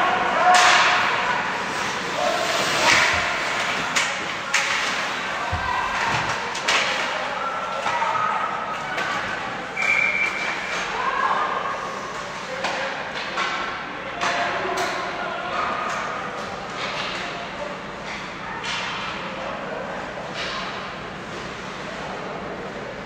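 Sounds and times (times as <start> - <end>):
spectators' voices and calls: 0.0 - 23.0
hockey sticks and puck knocking: 2.7 - 7.2.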